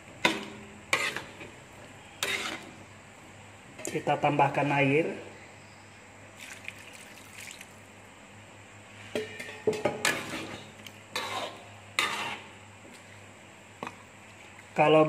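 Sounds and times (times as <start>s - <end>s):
spatula scraping a wok: 0.2s - 2.9s, 9.0s - 12.6s
water pouring into a wok: 6.4s - 7.8s.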